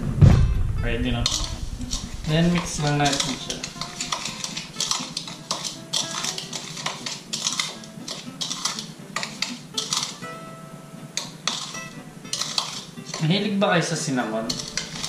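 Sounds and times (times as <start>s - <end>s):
spoon scraping and clinking bowl: 1.2s - 10.2s, 11.2s - 13.4s, 14.3s - 15.0s.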